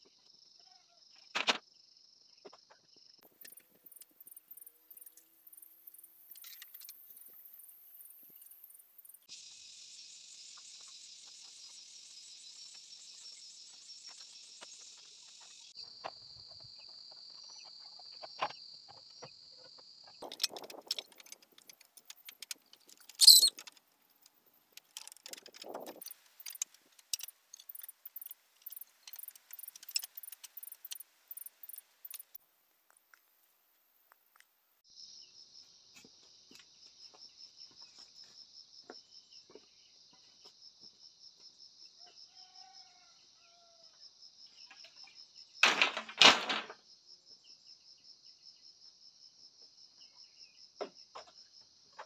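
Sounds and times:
insects buzzing: 0:03.2 - 0:32.4
clay roof tiles clinking: 0:20.2 - 0:32.3, 0:45.6 - 0:46.8.

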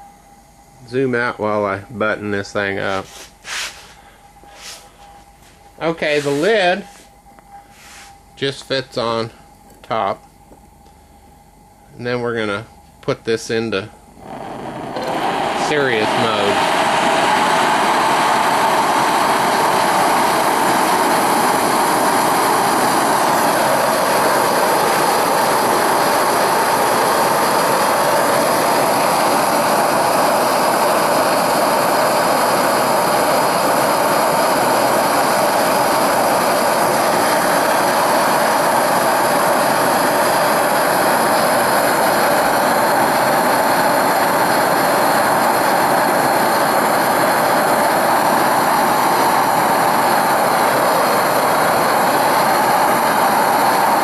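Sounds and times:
torch flame roaring: 0:14.0 - 0:54.0.

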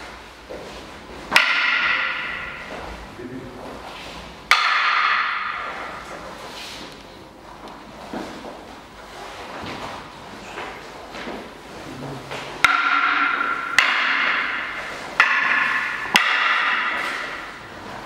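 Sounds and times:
wooden sticks clacking: 0:01.3 - 0:02.8, 0:04.5 - 0:06.1, 0:12.6 - 0:17.7.

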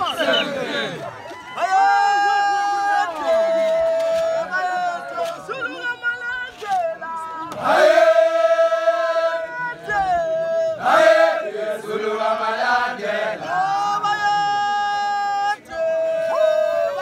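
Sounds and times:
men's group chant: 0:00.0 - 0:01.0, 0:07.5 - 0:14.5.

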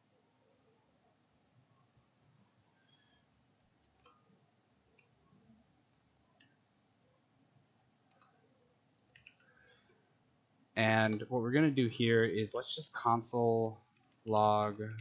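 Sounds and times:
keyboard keystrokes clicking: 0:09.0 - 0:09.4, 0:10.9 - 0:11.3.

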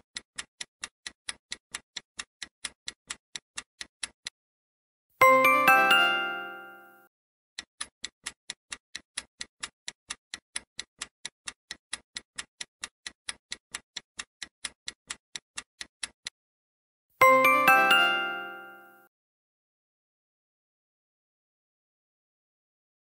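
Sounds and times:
countdown timer ticking: 0:05.2 - 0:07.0, 0:17.2 - 0:19.0
bright multi-note chime: 0:05.2 - 0:07.1, 0:17.2 - 0:19.1.

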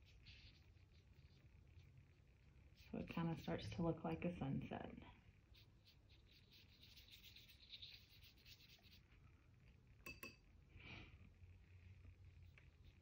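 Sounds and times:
faint light scratching: 0:00.0 - 0:04.1, 0:05.5 - 0:09.4.

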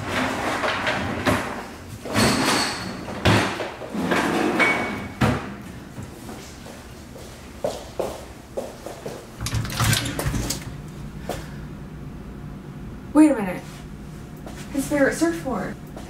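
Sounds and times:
cabinet drawers sliding: 0:00.0 - 0:05.5.

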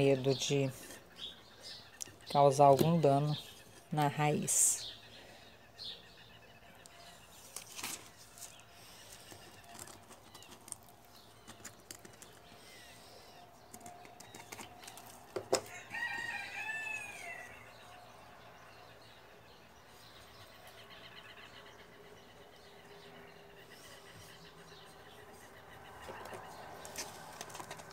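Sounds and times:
potting mix rustling and clicking: 0:01.9 - 0:04.2, 0:06.8 - 0:12.9, 0:13.6 - 0:15.8, 0:26.0 - 0:27.9
rooster crowing: 0:15.6 - 0:18.0.

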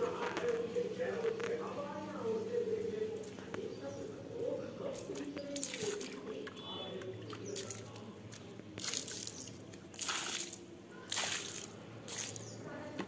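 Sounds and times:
water splashing onto concrete: 0:04.9 - 0:12.6.

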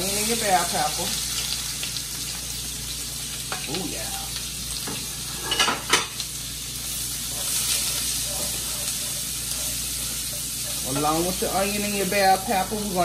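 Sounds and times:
vegetables sizzling in fat: 0:00.0 - 0:13.0
cookware clattering: 0:04.9 - 0:06.2
spatula stirring: 0:07.3 - 0:11.8.

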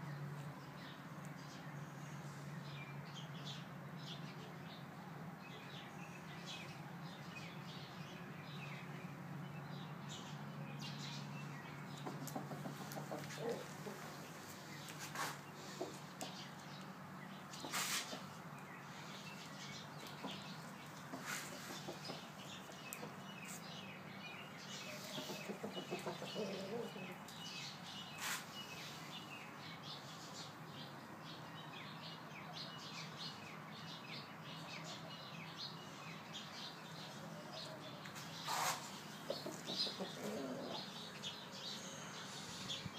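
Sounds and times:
small birds chirping: 0:00.0 - 0:42.9
chicken clucking: 0:12.0 - 0:14.4, 0:21.1 - 0:23.2, 0:24.9 - 0:27.2, 0:39.1 - 0:41.0.

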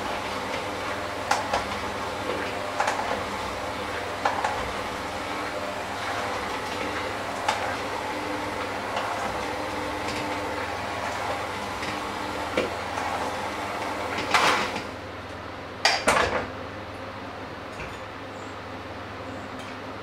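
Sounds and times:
electric hand mixer running: 0:00.0 - 0:15.0.

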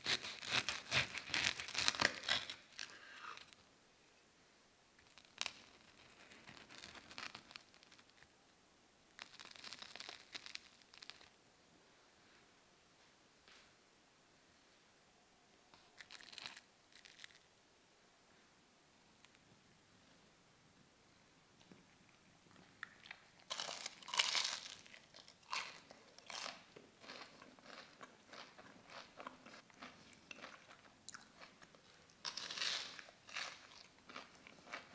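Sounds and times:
crispy donut crust crunching: 0:00.0 - 0:03.0, 0:05.0 - 0:08.3, 0:09.2 - 0:11.3, 0:16.0 - 0:17.4, 0:22.8 - 0:31.5.

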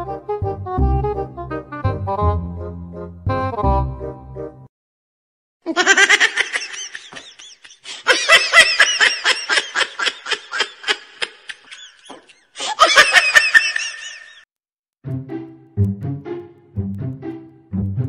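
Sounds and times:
high-pitched laughter: 0:05.7 - 0:14.4.

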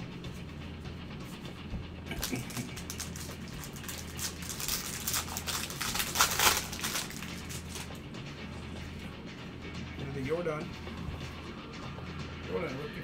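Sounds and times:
low hum: 0:00.0 - 0:13.0
cards clicking and rustling: 0:02.1 - 0:07.9.

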